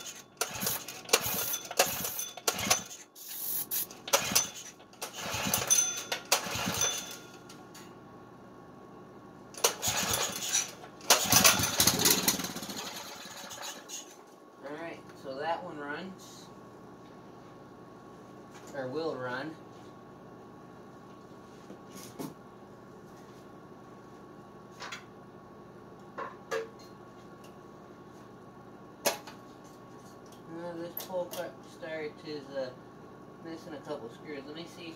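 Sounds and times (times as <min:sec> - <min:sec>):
recoil starter yanks: 0:00.0 - 0:07.2, 0:09.6 - 0:14.1.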